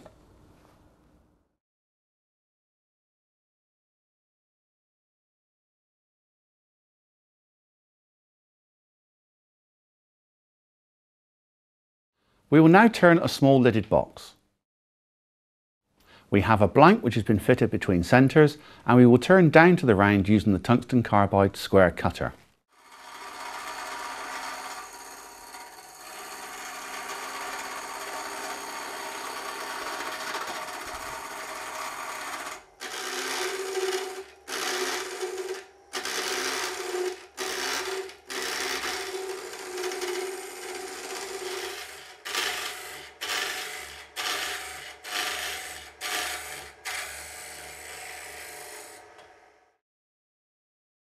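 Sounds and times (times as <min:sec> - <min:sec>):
lathe tool scraping wood: 0:22.8 - 0:49.6.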